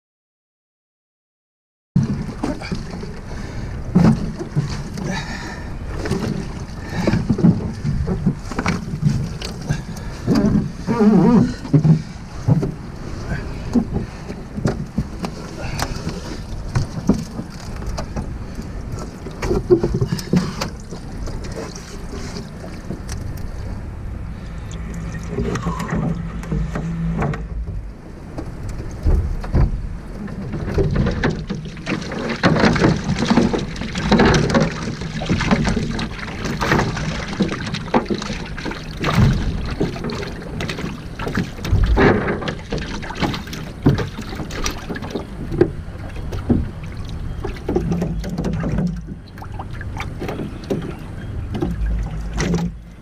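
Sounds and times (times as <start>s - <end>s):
water splashing and dripping: 2.0s - 23.7s, 24.3s - 53.0s
net and fish knocking on boat: 3.9s - 12.8s, 28.4s - 52.9s.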